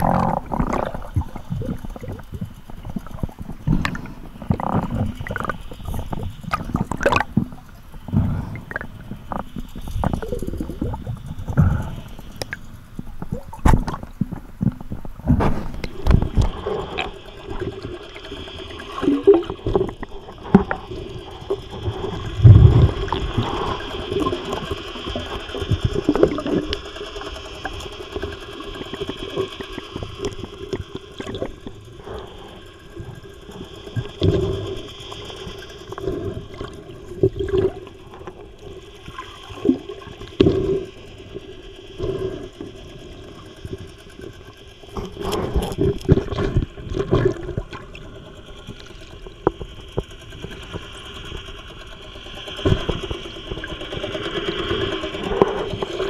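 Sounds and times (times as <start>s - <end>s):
underwater knocks and thumps: 0.0s - 17.8s
steady hum: 0.0s - 56.0s
underwater water gurgling and rushing: 0.0s - 56.0s.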